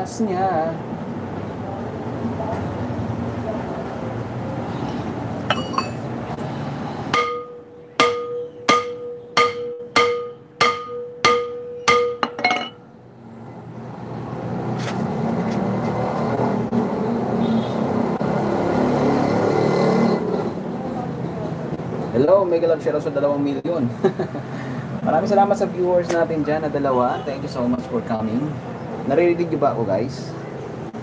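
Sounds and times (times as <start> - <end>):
hammer striking metal drum: 5.5 - 6.0, 7.1 - 12.8.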